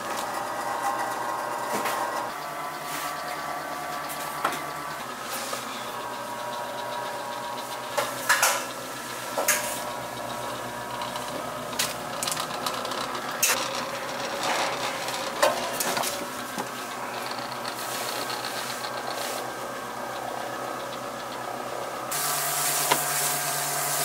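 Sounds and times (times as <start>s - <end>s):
dough-sheeting machine humming: 0.0s - 24.0s
knocks and clatters: 11.0s - 19.2s.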